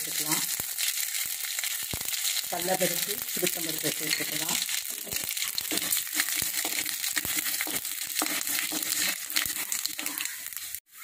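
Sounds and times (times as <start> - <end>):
seeds sizzling and crackling in oil: 0.0 - 11.0
wooden spatula stirring: 3.4 - 11.0.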